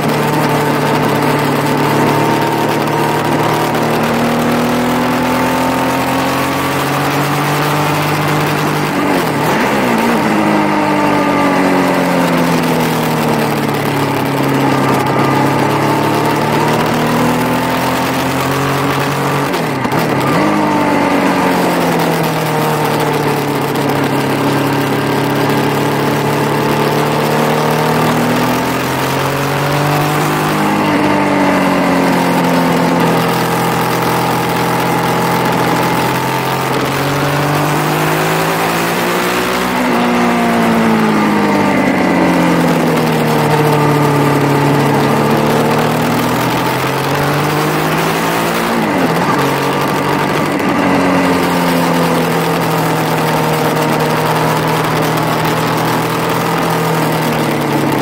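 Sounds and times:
gear changes: 0.0s - 58.0s
motorcycle engine at speed: 0.0s - 58.0s.

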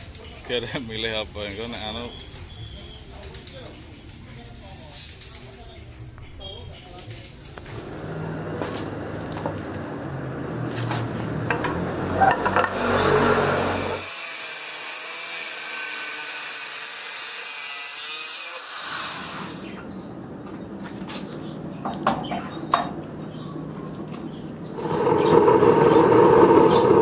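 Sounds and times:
cut-off disc grinding metal: 7.7s - 18.8s, 24.8s - 27.0s.

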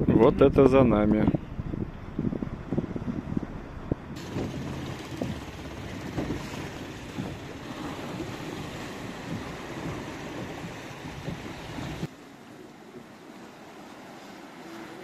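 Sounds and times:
wind buffeting microphone: 0.0s - 12.1s
small motorboat: 1.5s - 15.0s
water splashing along hull: 1.8s - 15.0s.

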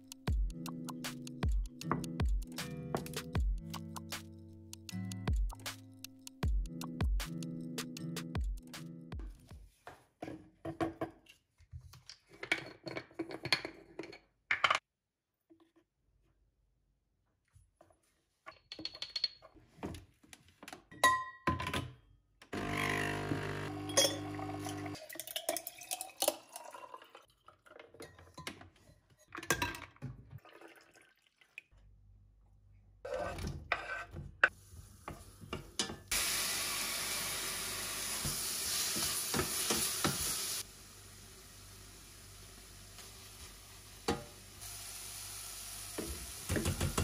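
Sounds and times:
espresso machine pump buzzing: 22.6s - 25.0s
portafilter clicks and clinks: 23.8s - 24.3s
food sizzling in saucepan: 36.1s - 47.0s.

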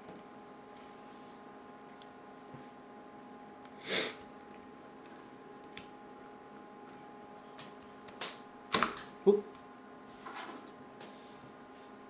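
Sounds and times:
electrical hum: 0.0s - 12.0s
person sniffing: 3.8s - 4.2s.

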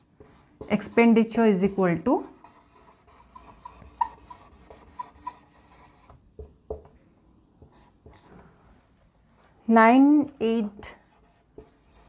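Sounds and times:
marker squeaking on whiteboard: 0.2s - 6.2s, 10.8s - 12.0s.

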